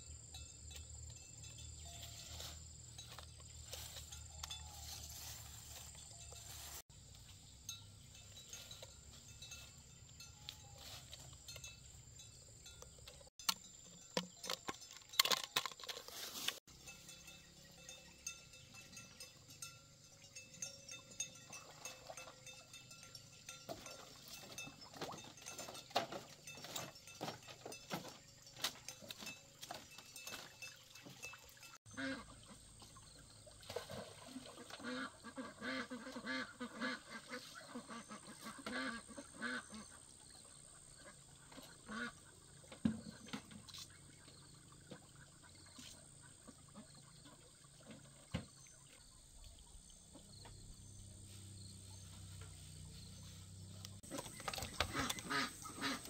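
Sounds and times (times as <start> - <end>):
footsteps on bamboo walkway: 2.0 - 7.4, 23.8 - 31.3, 52.0 - 56.0
ducks quacking: 31.9 - 32.7, 34.5 - 40.1, 41.0 - 42.4, 54.1 - 56.0.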